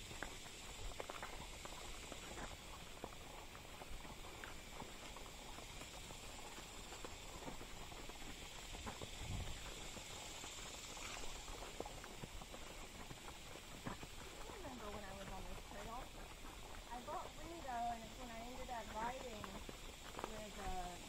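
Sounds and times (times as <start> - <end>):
horse hooves on dirt trail: 0.0 - 21.0.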